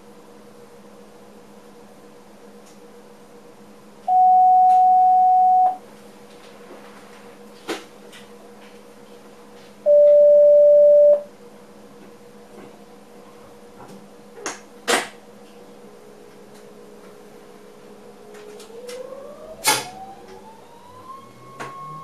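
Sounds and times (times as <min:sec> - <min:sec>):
electronic warning tones: 0:04.1 - 0:05.8, 0:09.9 - 0:11.3.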